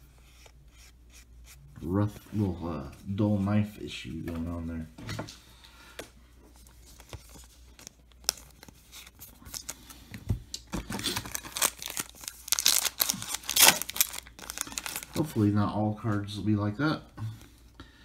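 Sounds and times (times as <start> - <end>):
cards rustling and scraping: 0.0 - 3.6, 6.0 - 15.4.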